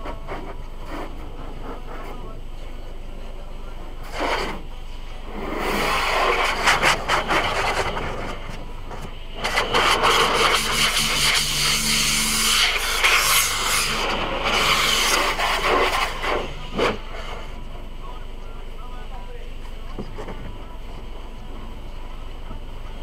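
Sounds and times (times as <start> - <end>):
wash brushes scrubbing car: 0.0 - 2.4, 4.0 - 17.4
low machine hum: 0.0 - 23.0
water spraying: 4.0 - 8.7, 9.3 - 17.4.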